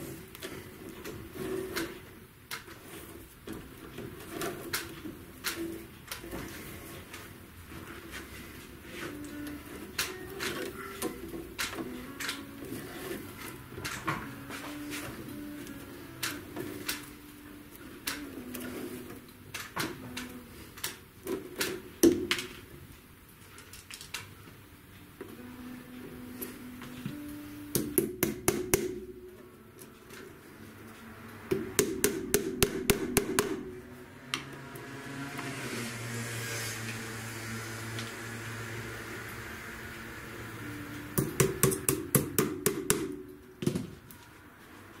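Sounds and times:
hammer driving tacks into wood: 27.7 - 29.0, 31.5 - 33.7, 41.2 - 43.9.

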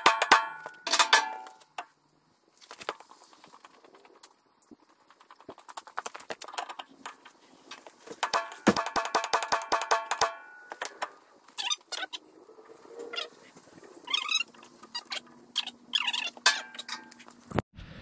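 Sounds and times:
hammer striking steel: 0.0 - 1.6, 8.2 - 11.0
metal knocks and clinks: 0.0 - 1.9, 6.3 - 11.2.

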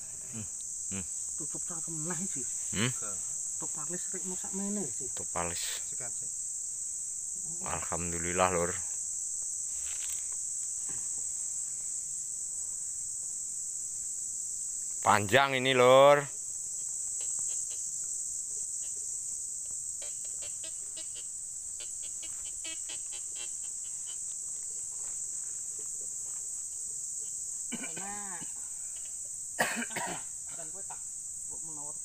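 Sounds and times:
insects chirring: 0.0 - 32.0
person coughing: 27.7 - 28.5, 29.6 - 30.6.

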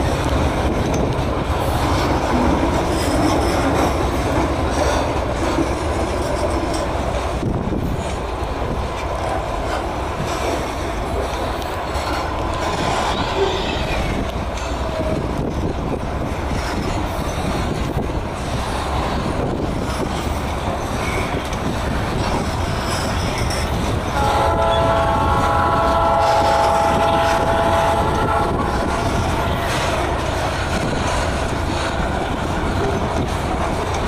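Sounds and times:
train wheels rumbling on rails: 0.0 - 34.0
locomotive horn chord: 24.2 - 29.2.

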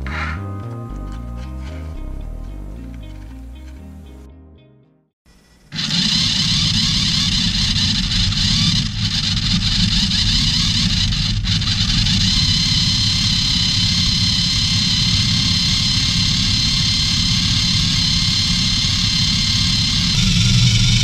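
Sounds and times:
motor and gear whine: 5.4 - 21.0.

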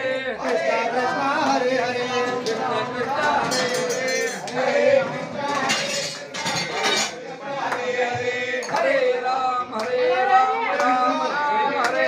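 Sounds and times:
chatter of many voices: 0.0 - 12.0
plates and utensils clinking: 2.0 - 7.8.

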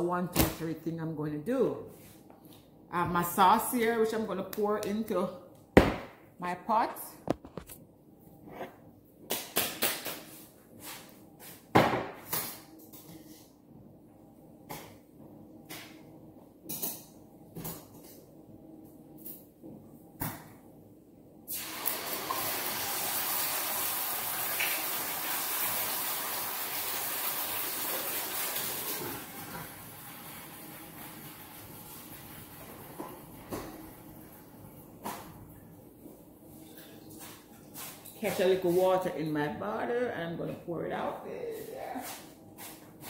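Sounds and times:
tap water running: 21.5 - 34.4.

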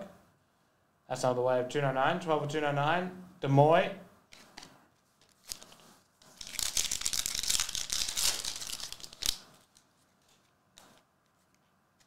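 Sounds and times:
foil wrapper tearing and crinkling: 5.3 - 10.4.

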